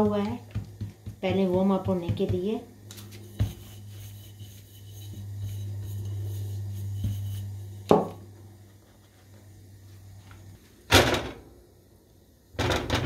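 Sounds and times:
bottle rubbing over dough: 0.5 - 7.9
low hum: 2.8 - 10.7.

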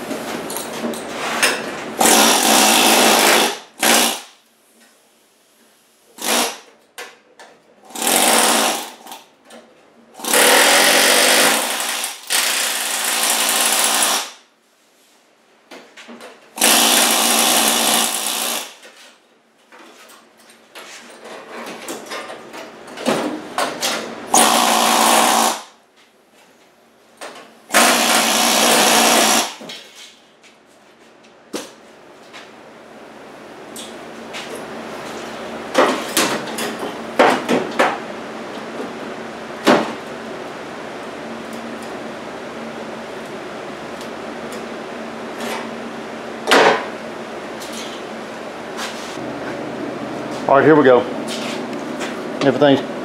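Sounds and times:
air hammer cutting sheet steel: 2.0 - 4.4, 6.2 - 6.7, 10.2 - 14.4, 16.6 - 18.8, 24.3 - 25.7, 27.7 - 29.6.

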